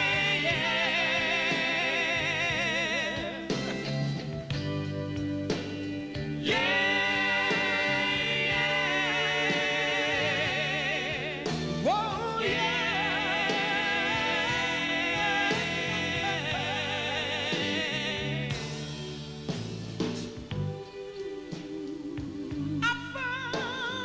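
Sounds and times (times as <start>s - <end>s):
man singing soul with vibrato: 0.0s - 3.7s, 6.4s - 18.7s, 21.8s - 24.0s
band playing: 0.0s - 24.0s.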